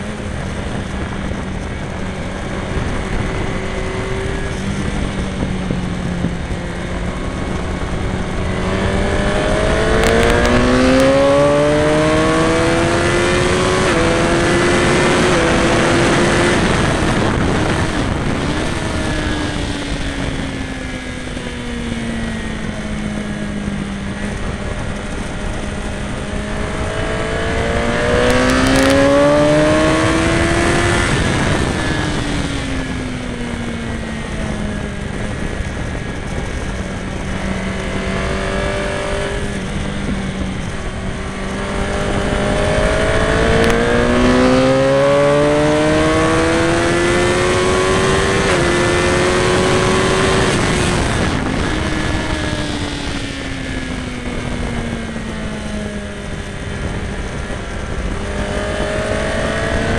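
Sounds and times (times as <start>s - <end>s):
motorcycle engine revving: 0.0s - 59.9s
wind rushing: 0.0s - 59.9s.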